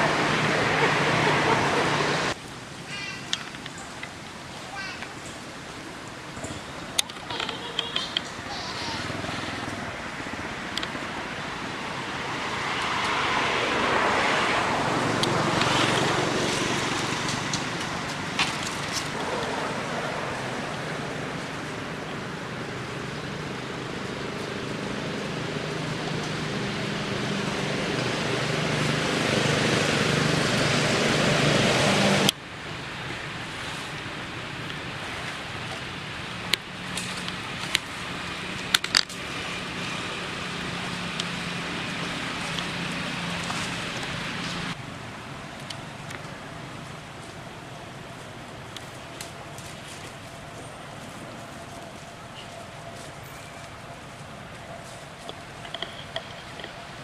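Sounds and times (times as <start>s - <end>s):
engine humming: 0.0s - 57.0s
motorbike engine passing: 7.4s - 32.3s.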